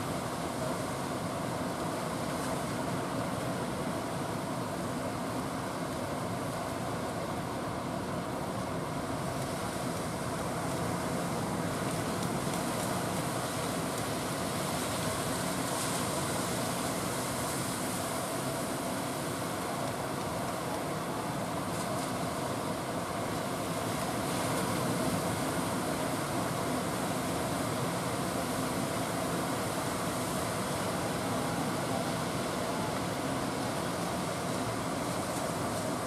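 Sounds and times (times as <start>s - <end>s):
heavy surf breaking: 9.1s - 36.0s.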